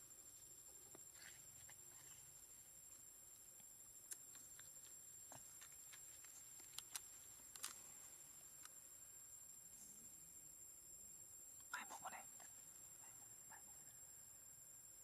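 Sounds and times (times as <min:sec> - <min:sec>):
small scattered clicks: 0:05.6 - 0:07.8.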